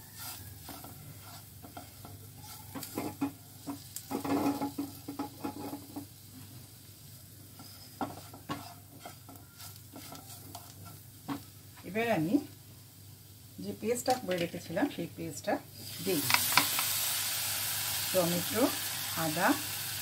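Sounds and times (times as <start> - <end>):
spatula scraping frying pan: 0.0 - 6.3, 7.4 - 11.5
light sizzle: 0.0 - 20.0.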